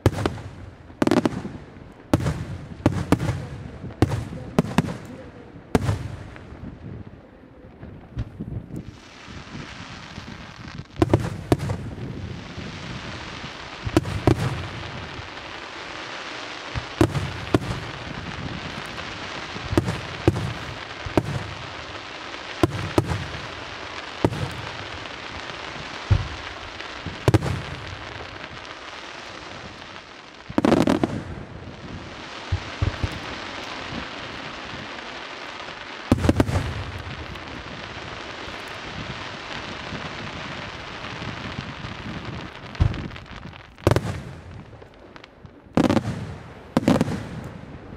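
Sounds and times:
continuous hiss: 0.0 - 47.9.

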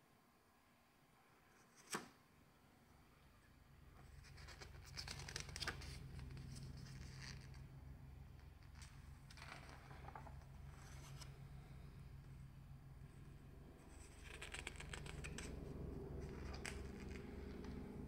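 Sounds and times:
low steady hum: 2.3 - 18.0
pages turning and crackling: 4.0 - 7.8, 8.4 - 11.8, 13.8 - 18.0.

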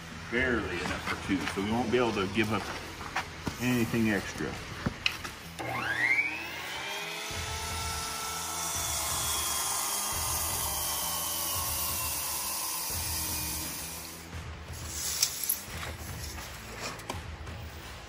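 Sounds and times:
circular saw cutting wood: 5.6 - 17.1.

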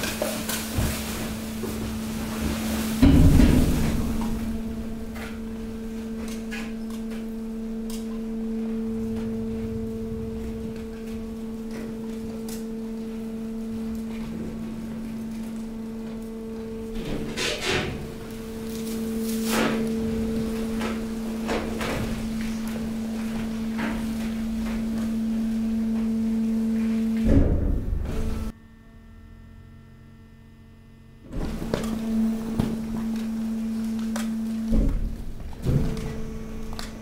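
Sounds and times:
debris knocking and scraping: 0.0 - 7.3
hydraulic power unit humming: 0.0 - 37.0
heavy thud: 2.9 - 6.2, 27.2 - 28.5.

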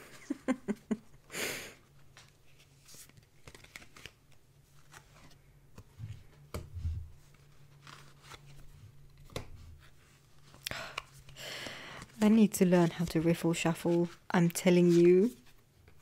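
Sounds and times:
cards tapping and clicking: 9.2 - 9.5.

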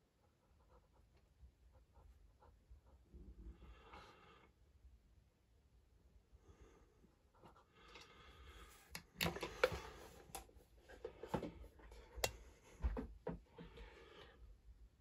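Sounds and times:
light handling clicks and knocks: 8.9 - 13.4.

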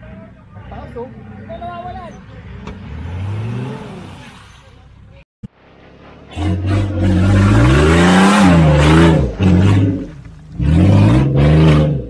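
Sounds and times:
off-road engine revving hard: 2.1 - 4.9, 6.0 - 12.0.

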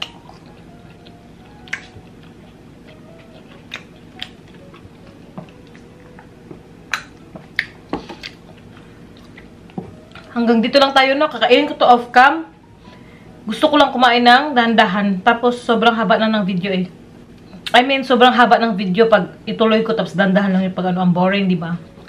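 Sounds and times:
wet chewing mouth clicks: 0.0 - 6.3
low room hum: 0.0 - 22.0.

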